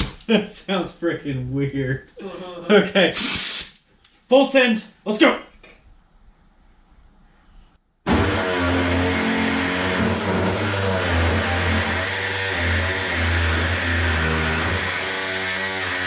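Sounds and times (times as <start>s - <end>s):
faint air hiss: 2.2s - 5.3s
pneumatic saw cutting sheet steel: 8.1s - 16.0s.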